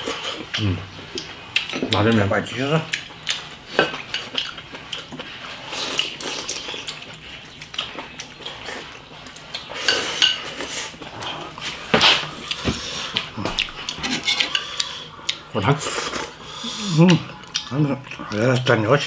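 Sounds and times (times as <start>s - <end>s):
chewing: 0.0s - 19.0s
chopsticks clicking on bowls: 13.2s - 15.4s.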